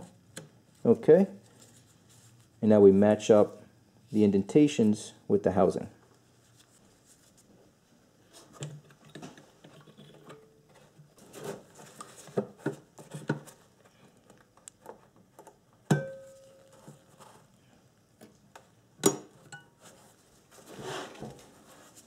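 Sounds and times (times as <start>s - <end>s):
small clicks and taps of handling parts: 14.2s - 15.6s.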